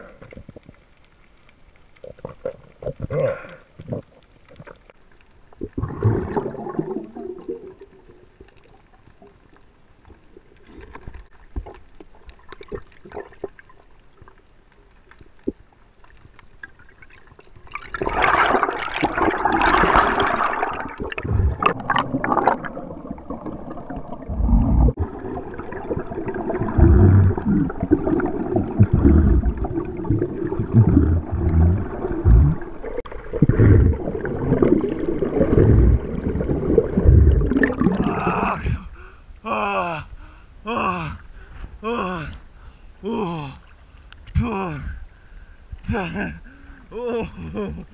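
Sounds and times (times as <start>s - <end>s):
underwater bubbling rush: 0.0s - 14.0s, 15.4s - 39.2s.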